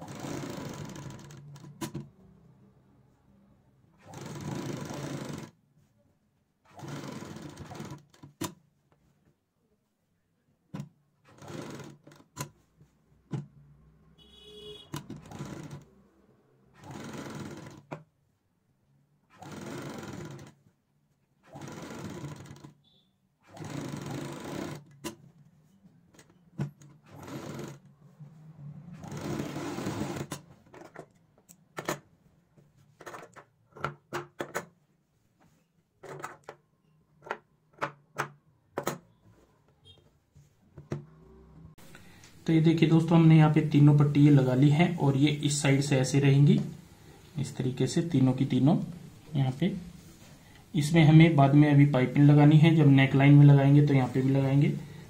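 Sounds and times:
sewing machine stitching: 0.0 - 2.2, 4.0 - 5.6, 6.7 - 8.6, 10.8 - 12.6, 14.6 - 16.1, 16.7 - 18.1, 19.3 - 20.7, 21.4 - 25.3, 26.1 - 27.9, 28.8 - 31.2, 51.7 - 55.0.

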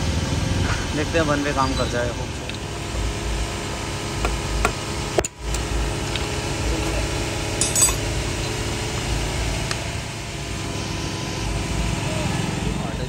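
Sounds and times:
metal tools clinking on metal: 7.5 - 8.6.

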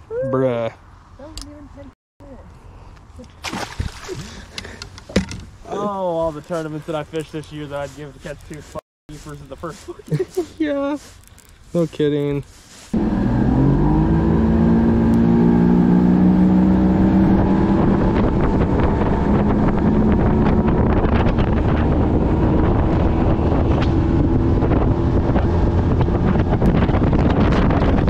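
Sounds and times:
wind buffeting microphone: 16.4 - 28.0.

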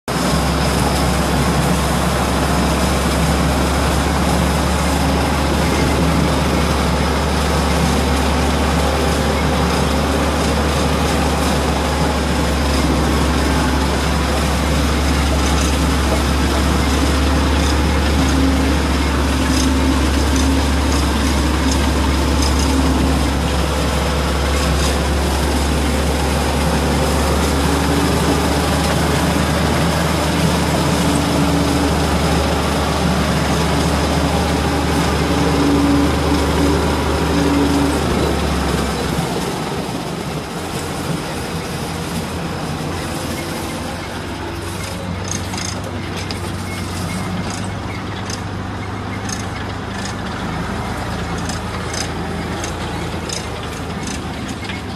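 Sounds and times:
shredder machinery noise: 0.0 - 54.9
tractor diesel engine running: 0.0 - 54.9.

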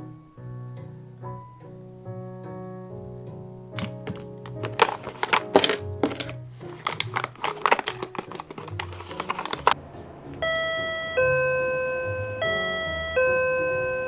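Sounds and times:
quick clicks and taps: 3.8 - 9.8
intercom ding-dong chime: 10.4 - 14.0.

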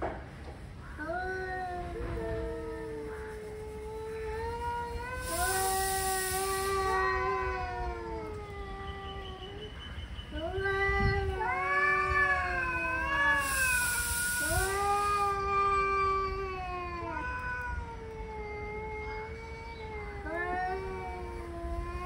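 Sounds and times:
cats yowling: 0.9 - 22.0
cat hissing: 1.8 - 7.6, 12.4 - 15.6.

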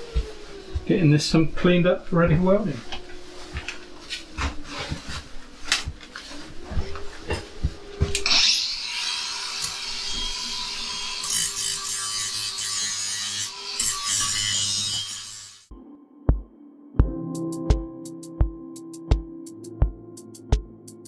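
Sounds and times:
angle grinder grinding metal: 8.2 - 15.7.

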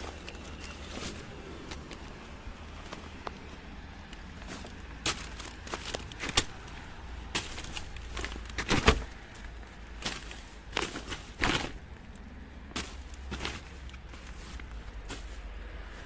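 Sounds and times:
plastic bags crinkling: 4.4 - 11.9, 12.8 - 15.4.

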